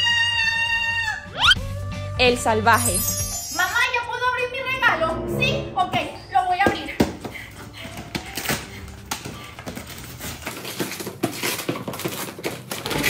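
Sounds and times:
wrapping paper tearing and crinkling: 8.2s - 13.0s.

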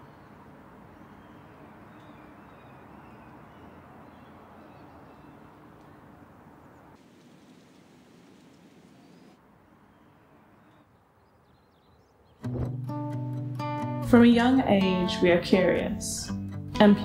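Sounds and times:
birds calling: 0.0s - 13.1s.

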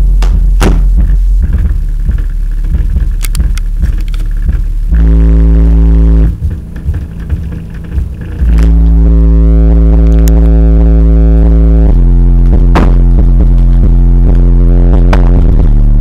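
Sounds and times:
distorted deep bass notes: 0.0s - 16.0s.

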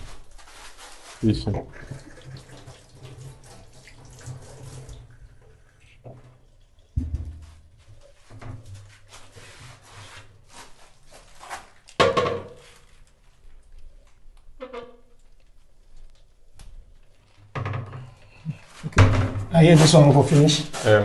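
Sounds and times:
rubbing and handling noise: 0.0s - 5.0s, 7.3s - 14.2s, 18.2s - 21.0s
tap water running into sink: 1.5s - 7.6s.

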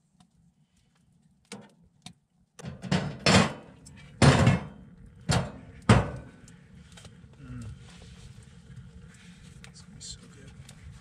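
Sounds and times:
faint clicks: 6.3s - 9.8s.

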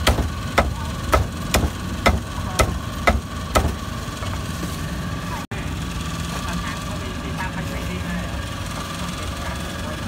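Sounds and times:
cleaver chopping meat: 0.0s - 3.8s
steady engine hum: 0.0s - 10.0s.

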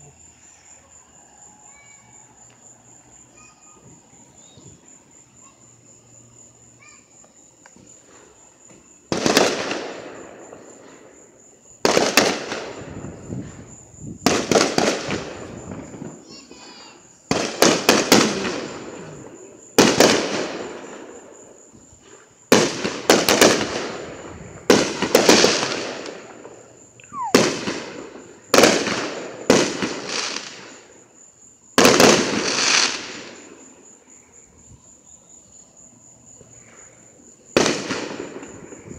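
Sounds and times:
fireworks crackle and rumble: 1.7s - 35.0s, 36.1s - 38.9s
fireworks bangs: 6.8s - 33.8s, 36.4s - 38.9s
falling firework whistle: 27.0s - 30.8s.

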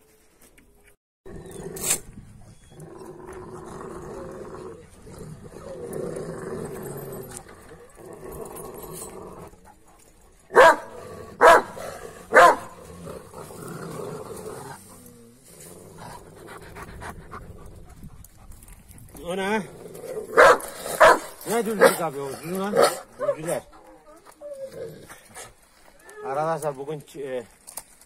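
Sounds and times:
dog growling: 2.6s - 9.8s, 10.8s - 17.9s, 19.6s - 25.4s
dog barking loudly: 10.5s - 12.8s, 20.3s - 22.0s.

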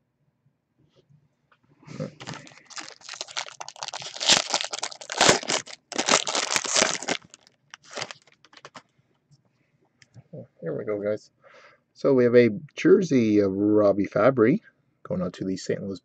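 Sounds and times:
foil wrapper crinkling: 2.2s - 8.8s.

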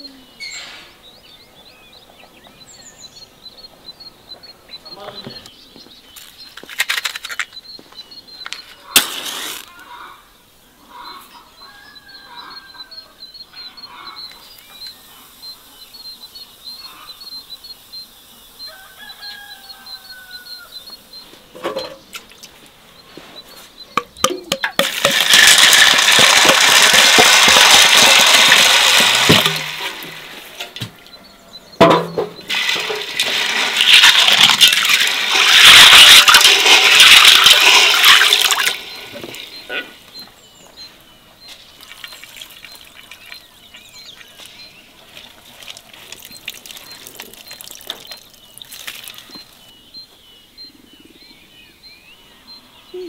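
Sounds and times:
birds calling: 0.0s - 53.0s
water poured into basin: 24.8s - 30.3s, 32.5s - 39.2s, 45.6s - 49.2s.

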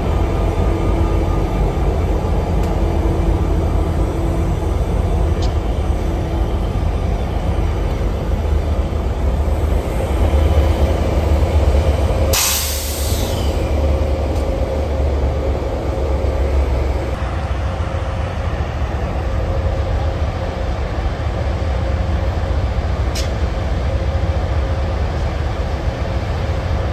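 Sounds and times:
diesel locomotive engine rumbling: 0.0s - 26.9s
sharp hiss of air: 12.3s - 13.6s.

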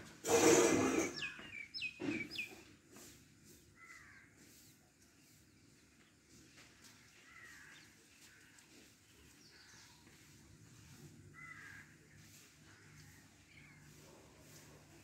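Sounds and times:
faint crow caws: 3.8s - 4.6s, 7.0s - 8.9s, 11.3s - 14.0s.

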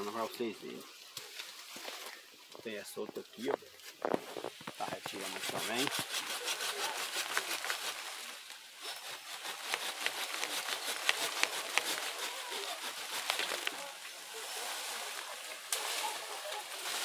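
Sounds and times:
leaves rustling: 0.0s - 17.0s
wood cracking and snapping: 9.2s - 14.0s.

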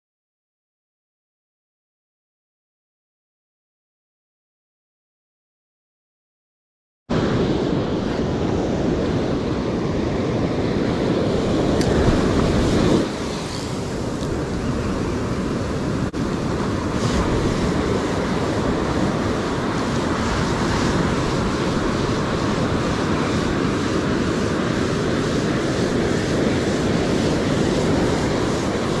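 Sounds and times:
ocean surf breaking: 7.1s - 29.0s
wind buffeting microphone: 7.1s - 29.0s.

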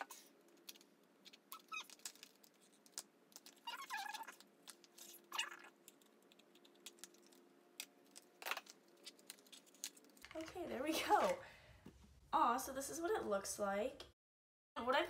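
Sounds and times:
plastic crinkling: 0.0s - 11.4s.

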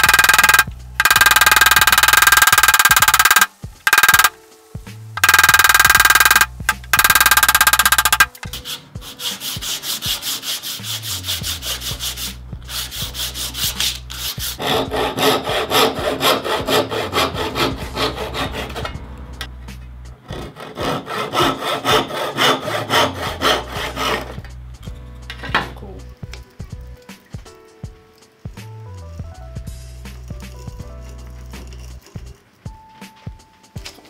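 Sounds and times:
hand saw cutting wood: 0.0s - 4.3s, 5.2s - 19.0s, 20.2s - 24.4s.

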